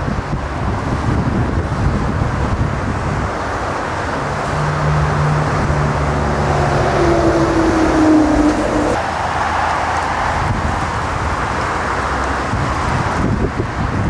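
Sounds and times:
jet engines rumbling: 0.0s - 14.0s
wind buffeting microphone: 0.0s - 14.0s
higher whine: 4.1s - 9.2s.

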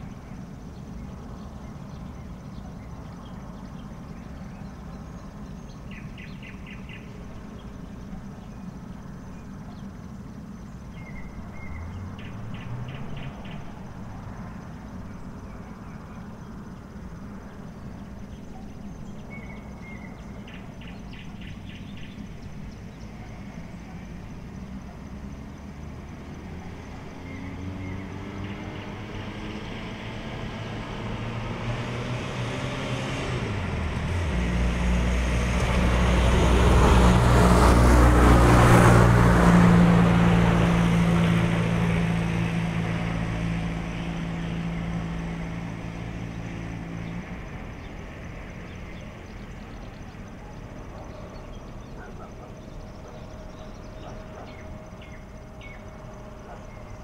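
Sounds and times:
vehicle engine hum: 0.0s - 57.0s.

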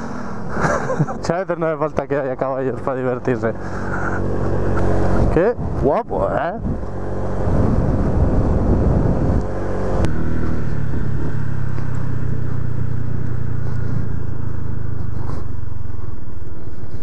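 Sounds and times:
scooter engine running: 3.1s - 17.0s
wind rushing on microphone: 5.0s - 12.6s.

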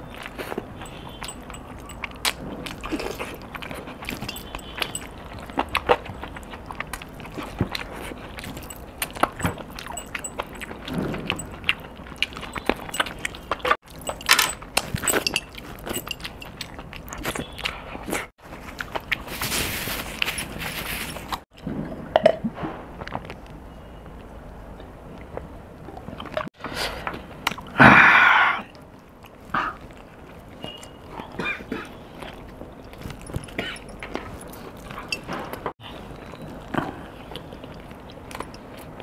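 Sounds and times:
biting and chewing: 0.0s - 22.4s, 25.2s - 39.0s
jingle of metal bracelets: 0.8s - 2.2s, 4.0s - 5.7s, 8.4s - 11.6s, 12.4s - 16.7s.

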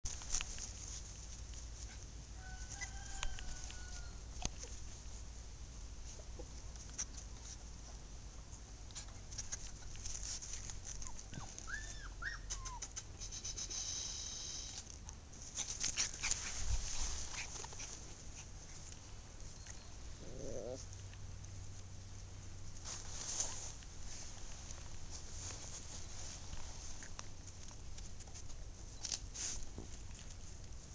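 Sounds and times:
rustling and clicking: 0.1s - 5.1s, 8.8s - 11.7s, 14.8s - 19.8s
puppy whining: 11.0s - 14.8s, 19.5s - 21.0s.

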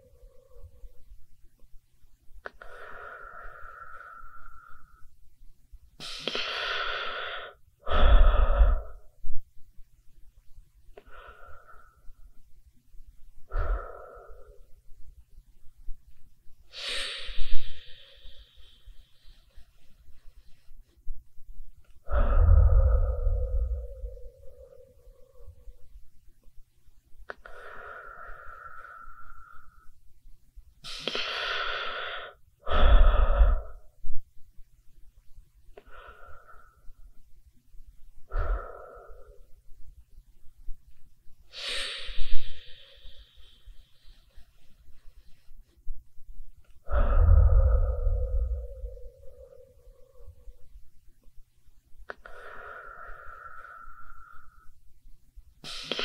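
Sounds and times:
person breathing through mouth: 2.5s - 5.1s, 6.0s - 9.2s, 13.5s - 14.8s, 16.7s - 19.8s, 22.0s - 25.8s, 27.3s - 29.9s, 30.8s - 34.0s, 35.8s - 37.1s, 38.2s - 39.6s, 41.5s - 44.5s, 46.7s - 50.7s, 52.1s - 54.8s, 55.6s - 56.0s
low rumble: 22.0s - 26.1s, 46.8s - 51.0s.

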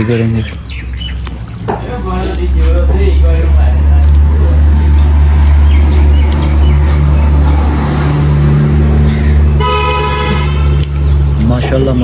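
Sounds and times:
motor vehicle engine rumble: 0.0s - 12.0s
vehicle horn: 9.5s - 11.0s.

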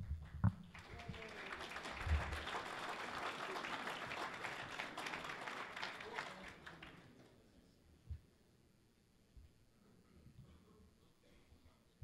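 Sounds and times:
audience applauding: 0.6s - 7.3s.

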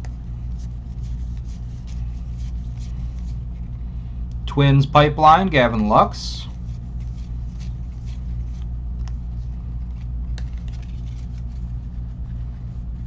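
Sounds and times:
steady low hum: 0.0s - 13.0s
cards and wrappers rustling: 6.5s - 13.0s.

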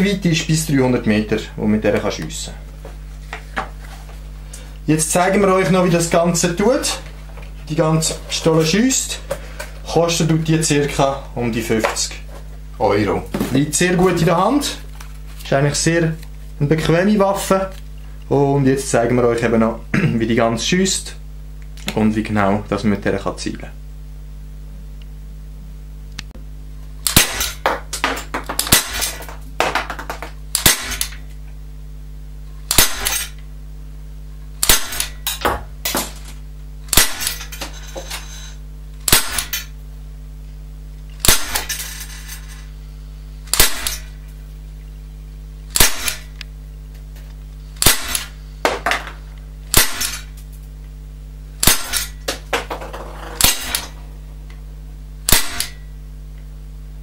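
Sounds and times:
air pistol shots: 27.0s - 27.7s, 28.6s - 29.3s, 30.5s - 31.2s, 32.7s - 33.3s, 34.6s - 35.2s, 36.9s - 37.4s, 39.1s - 39.6s, 41.2s - 41.7s, 43.5s - 44.1s, 45.7s - 46.3s, 47.8s - 48.3s, 49.7s - 50.3s, 51.6s - 52.2s, 53.4s - 54.0s, 55.3s - 55.8s.

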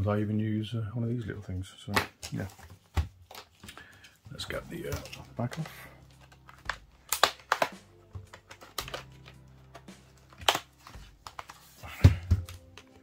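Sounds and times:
plastic clips snapping loose: 4.9s - 13.0s.

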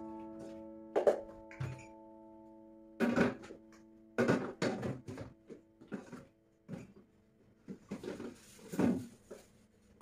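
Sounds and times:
plastic containers knocking on shelves: 4.2s - 6.9s.

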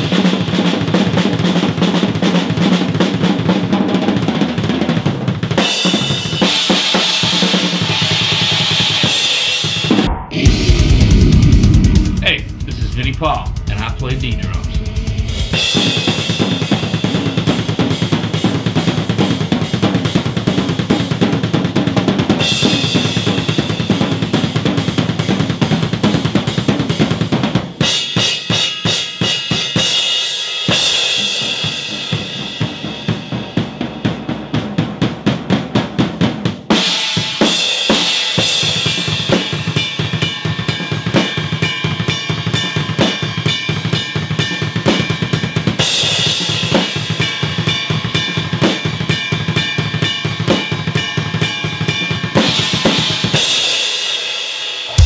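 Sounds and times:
acoustic drum kit played hard: 0.0s - 55.0s.

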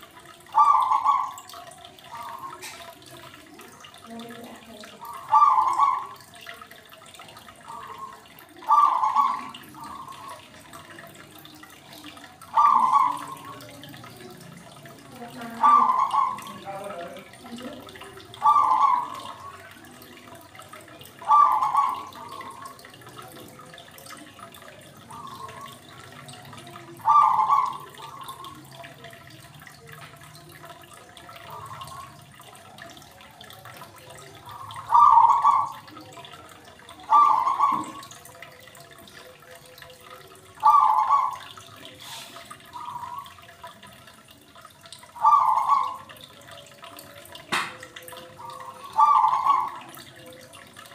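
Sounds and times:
aquarium water gurgling: 0.0s - 50.9s.

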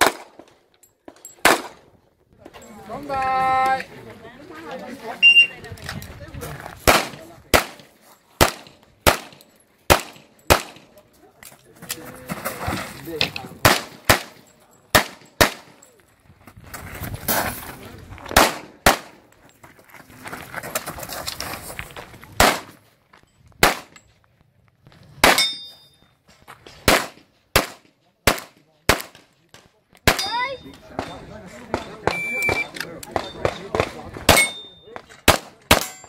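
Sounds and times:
pistol shots: 0.0s - 0.4s, 1.4s - 1.8s, 6.8s - 10.9s, 13.6s - 15.8s, 18.3s - 19.2s, 22.4s - 22.8s, 23.6s - 24.0s, 25.2s - 25.6s, 26.8s - 29.2s, 31.7s - 36.0s.

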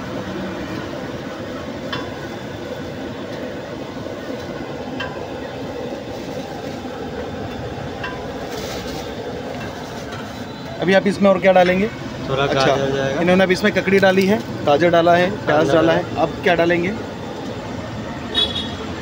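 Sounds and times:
street food stall background noise: 0.0s - 19.0s
plastic rustle: 8.3s - 10.6s.

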